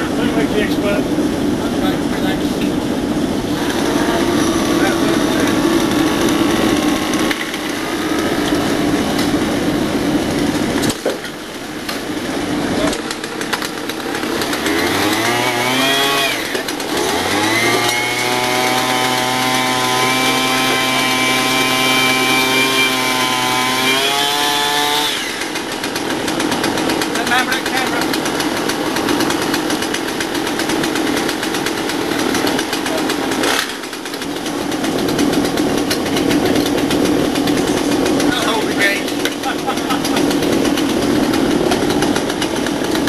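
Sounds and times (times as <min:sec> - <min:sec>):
small petrol engine revving: 0:01.8 - 0:43.0.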